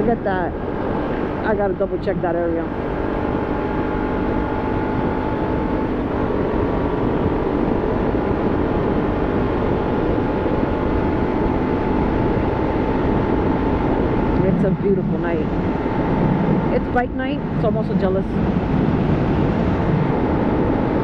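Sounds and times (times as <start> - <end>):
motorcycle engine drone: 0.0 - 21.0
wind rush: 0.0 - 21.0.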